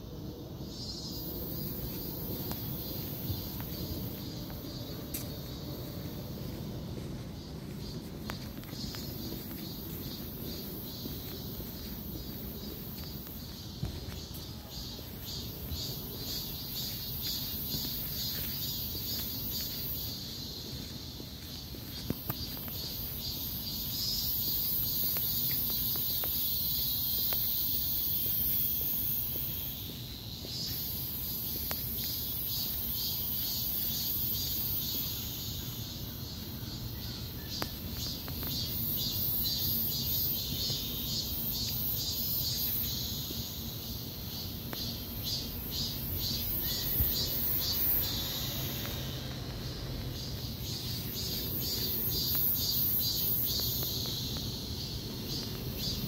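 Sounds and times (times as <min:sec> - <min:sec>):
insects buzzing and chirping: 0:00.0 - 0:56.0.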